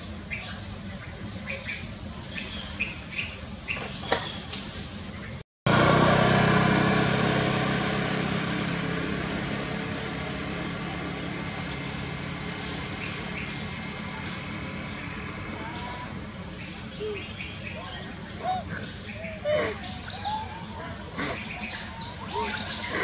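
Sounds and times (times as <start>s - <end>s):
small birds chirping: 0.0s - 5.4s, 10.3s - 23.0s
loud mechanical rumble: 0.0s - 23.0s.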